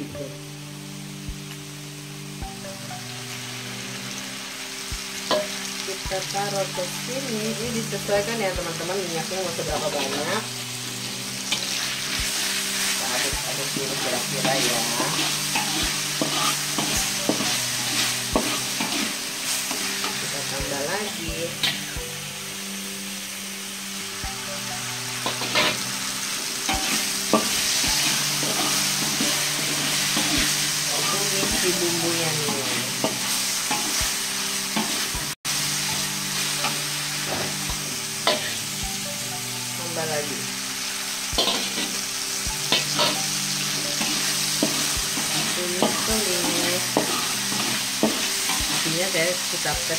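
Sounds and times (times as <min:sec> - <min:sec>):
paste sizzling in oil: 0:00.6 - 0:49.9
spatula scraping a wok: 0:11.4 - 0:20.3, 0:25.1 - 0:38.6, 0:41.3 - 0:49.4.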